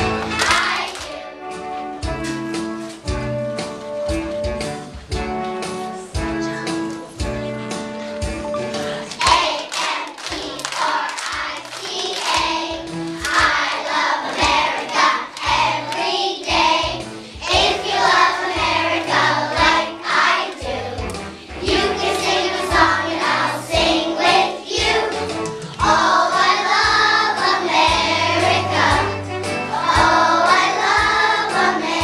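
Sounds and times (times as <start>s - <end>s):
hands clapping: 0.0s - 1.3s, 8.6s - 17.1s, 20.5s - 23.4s, 24.4s - 27.6s
children singing together: 0.0s - 1.4s, 8.8s - 32.0s.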